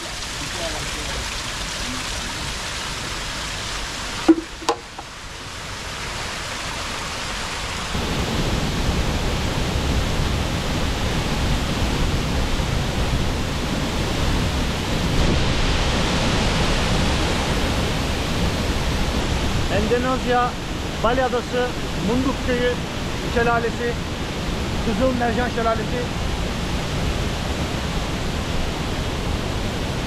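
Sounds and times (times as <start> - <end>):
water splashing from spout: 0.0 - 7.9
small stream: 0.0 - 30.0
waterfall roaring: 0.0 - 30.0
sharp knocks: 4.3 - 5.1.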